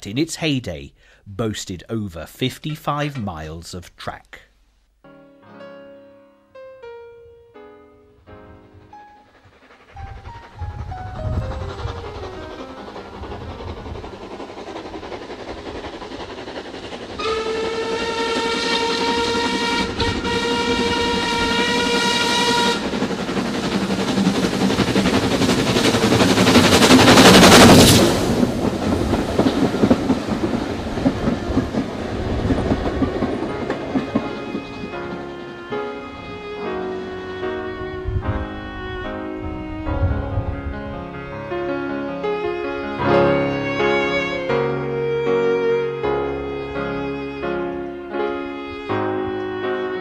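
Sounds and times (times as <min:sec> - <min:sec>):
steam locomotive working past: 0:06.7 - 0:50.0
rumble of carriages: 0:09.2 - 0:42.0
steam locomotive whistle: 0:17.1 - 0:28.6, 0:33.5 - 0:40.2.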